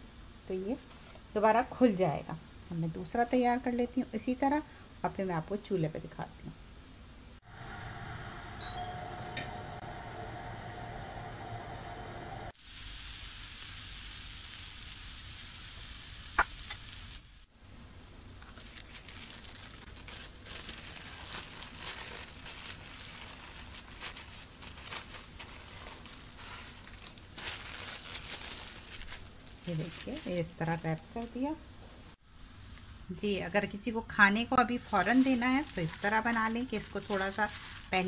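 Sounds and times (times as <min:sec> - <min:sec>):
wrap sizzling on grill pan: 0:11.4 - 0:17.5.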